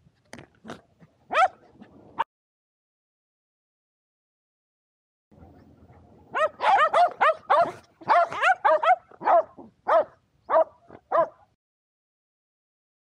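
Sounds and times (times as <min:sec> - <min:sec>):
dog barking: 0:01.3 - 0:01.6, 0:06.3 - 0:11.5.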